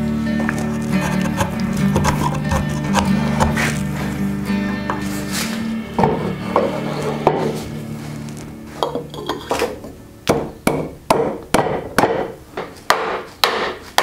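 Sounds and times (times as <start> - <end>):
background music: 0.0 - 11.4
mallet knocking wood: 10.3 - 12.3, 12.9 - 13.8.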